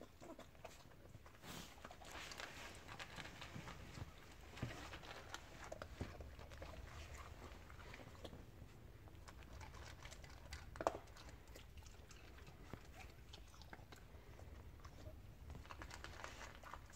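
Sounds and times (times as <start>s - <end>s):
dog eating dry kibble from metal bowl: 9.2s - 13.9s.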